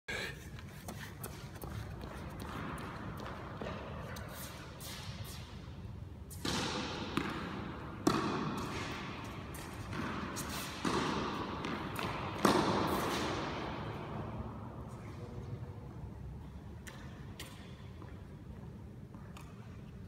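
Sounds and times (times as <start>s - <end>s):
tennis balls struck and bouncing: 1.2s - 4.4s, 6.3s - 14.5s.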